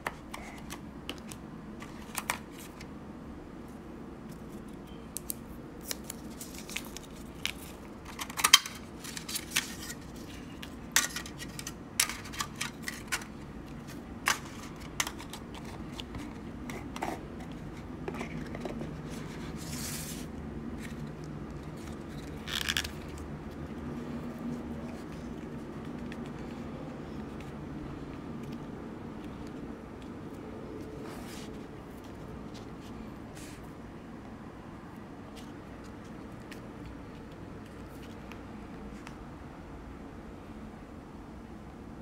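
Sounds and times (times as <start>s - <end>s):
protective film crinkling: 4.4s - 18.6s, 19.2s - 27.8s.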